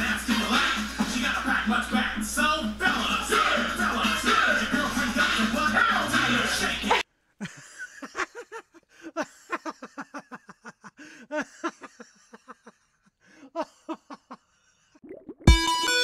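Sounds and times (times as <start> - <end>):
hip-hop music: 0.0 - 7.0.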